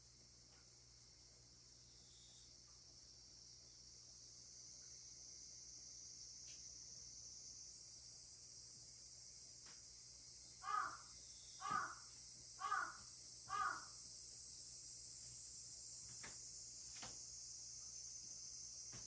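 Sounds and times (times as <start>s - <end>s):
shrill insects: 0.0s - 19.0s
crow cawing: 10.6s - 14.0s.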